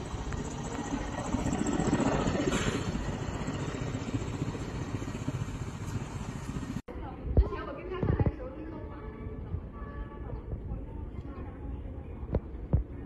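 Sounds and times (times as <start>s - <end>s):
road traffic rumble: 0.0s - 6.8s
wind noise on microphone: 6.9s - 13.0s.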